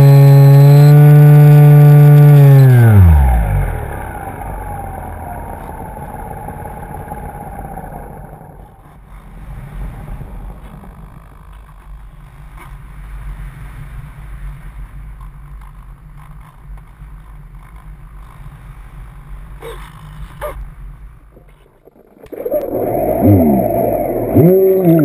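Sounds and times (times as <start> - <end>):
model plane motor droning: 0.0 - 11.8, 21.8 - 25.0.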